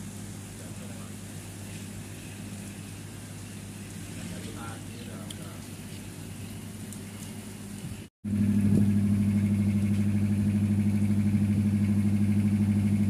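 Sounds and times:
boat engine droning: 0:00.7 - 0:05.6, 0:08.3 - 0:13.0.

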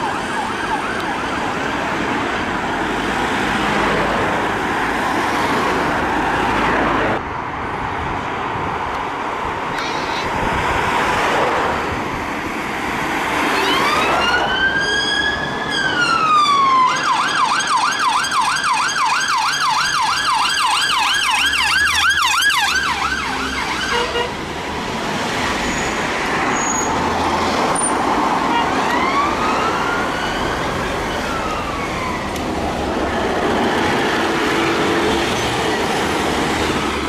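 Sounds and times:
police siren wailing and yelping: 0:00.0 - 0:01.9, 0:13.5 - 0:24.2, 0:28.6 - 0:32.8
traffic noise: 0:00.0 - 0:37.0.

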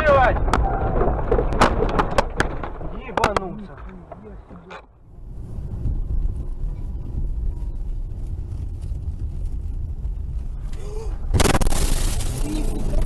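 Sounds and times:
engine and road rumble: 0:00.0 - 0:13.0
loud rushing scraping noise: 0:11.3 - 0:13.0.

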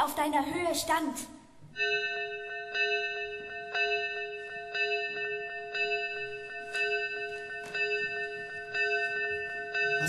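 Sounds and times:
bell tolling: 0:01.8 - 0:10.0.

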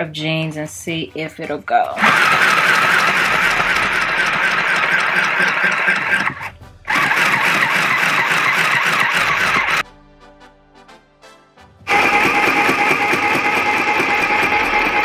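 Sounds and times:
sewing machine running: 0:02.0 - 0:09.8, 0:11.9 - 0:15.0.

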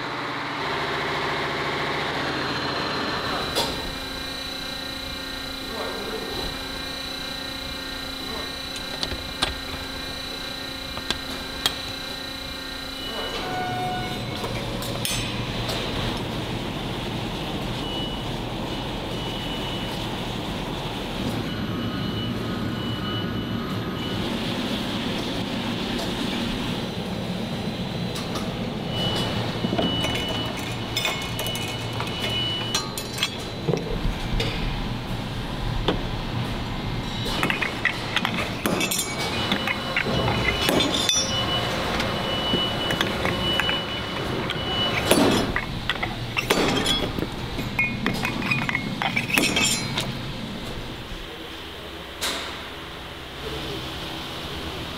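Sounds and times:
steady factory hum: 0:00.0 - 0:54.9
metal parts clinking: 0:29.0 - 0:33.9, 0:37.0 - 0:50.8
short metallic ringing tones: 0:37.1 - 0:50.1.

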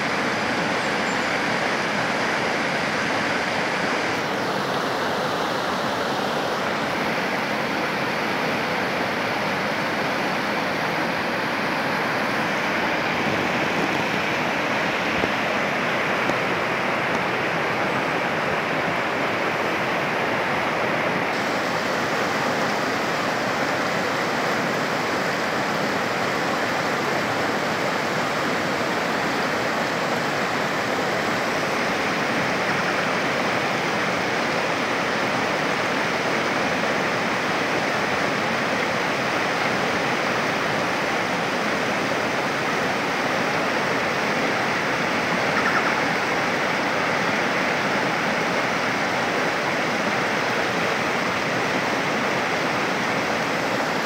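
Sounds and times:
stream rushing over stones: 0:00.0 - 0:54.0.

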